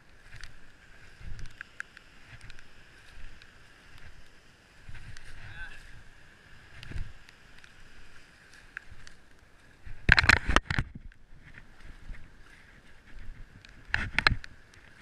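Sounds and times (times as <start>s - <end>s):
wind on microphone: 0.0s - 1.6s, 2.2s - 8.2s, 9.8s - 15.0s
surf washing in: 0.0s - 10.7s.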